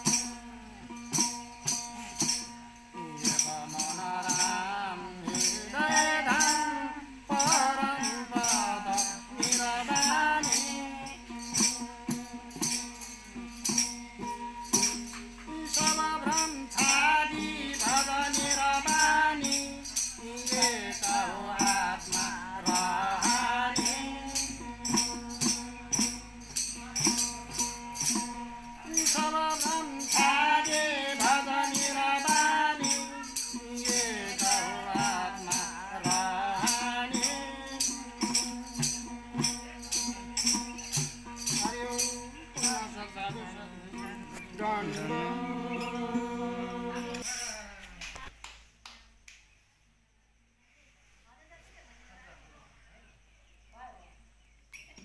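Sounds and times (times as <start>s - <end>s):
jingling frame drums: 0.0s - 48.0s
small hand cymbals: 0.0s - 48.0s
group singing: 3.0s - 12.2s, 15.1s - 40.1s, 40.9s - 48.0s.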